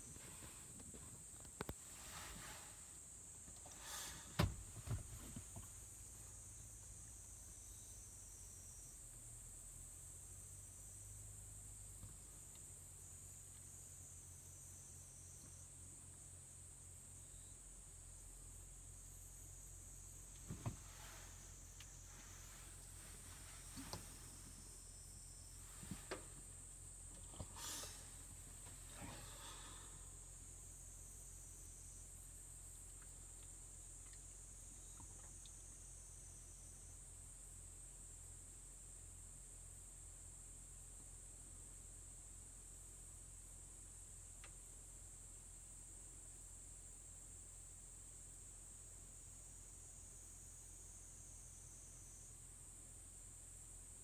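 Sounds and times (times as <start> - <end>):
faint high hiss: 0.0 - 54.0
faint ticks: 32.7 - 35.8, 44.4 - 44.6.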